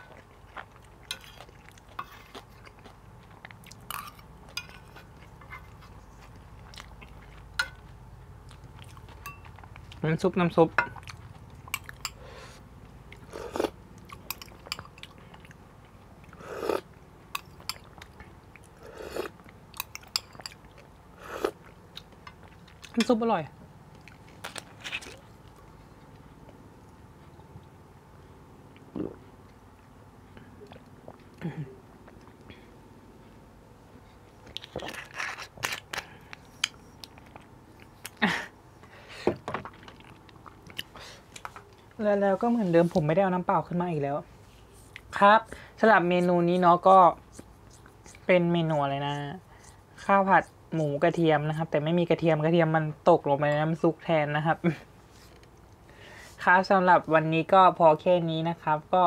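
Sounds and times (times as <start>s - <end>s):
mouth sound: 28.9s - 29.2s.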